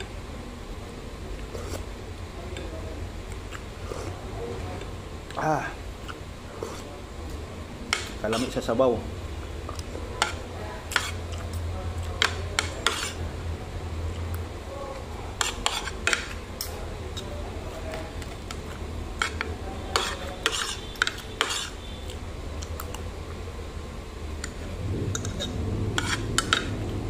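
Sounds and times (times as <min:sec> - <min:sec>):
steady low hum: 0:00.0 - 0:27.0
cutlery scraping a plate: 0:06.0 - 0:06.9, 0:07.9 - 0:08.6, 0:10.2 - 0:11.6, 0:12.2 - 0:13.2, 0:15.4 - 0:17.3, 0:17.9 - 0:21.9, 0:24.4 - 0:26.8.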